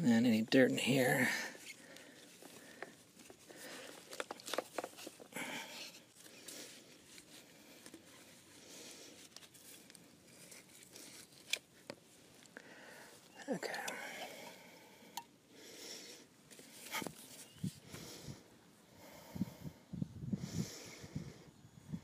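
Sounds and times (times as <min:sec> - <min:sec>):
gloved hands rustling and scraping: 0:00.0 - 0:15.2, 0:16.2 - 0:18.4.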